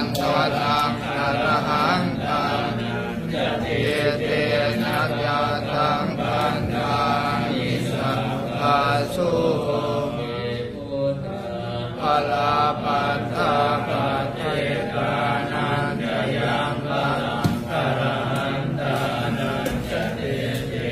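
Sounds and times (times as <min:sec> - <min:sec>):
voices chanting: 0:00.0 - 0:20.9.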